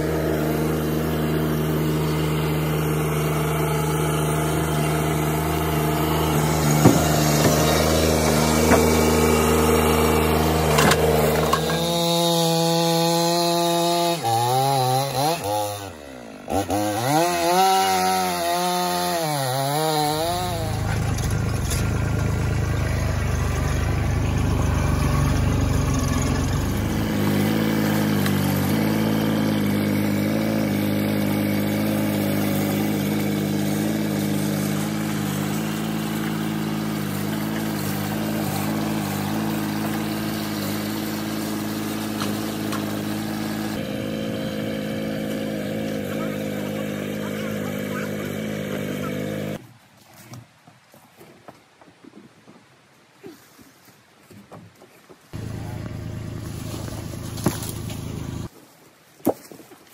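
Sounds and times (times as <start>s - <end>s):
loader engine running: 0.0s - 13.4s, 19.6s - 49.6s, 55.4s - 58.5s
chainsaw cutting a log: 0.0s - 49.6s, 55.4s - 58.5s.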